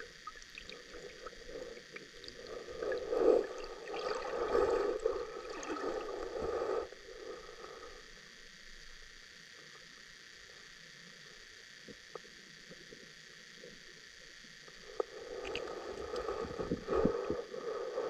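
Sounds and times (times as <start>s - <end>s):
muffled underwater gurgling: 0.0s - 7.8s, 14.8s - 18.0s.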